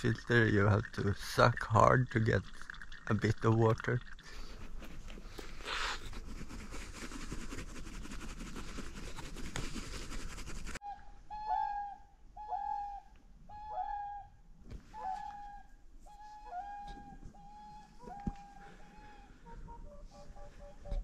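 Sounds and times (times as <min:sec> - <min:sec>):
swans honking: 0:15.0 - 0:21.0.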